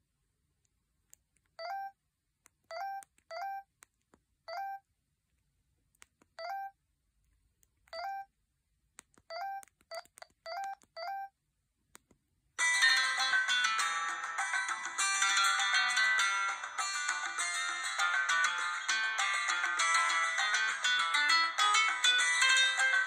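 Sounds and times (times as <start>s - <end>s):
phone keypad beeps: 1.6s - 2.0s, 2.7s - 3.7s, 4.5s - 4.8s, 6.4s - 6.8s, 7.9s - 8.3s, 9.3s - 11.4s.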